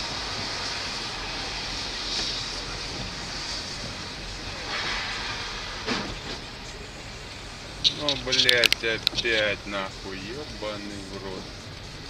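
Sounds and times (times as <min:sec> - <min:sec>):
constant hiss: 0:00.0 - 0:12.0
traffic on wet street: 0:00.0 - 0:12.0.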